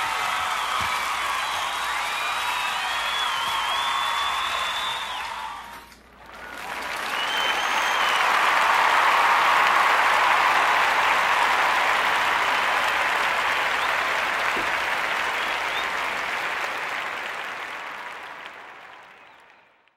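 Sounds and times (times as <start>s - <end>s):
crowd applauding: 0.0s - 19.9s.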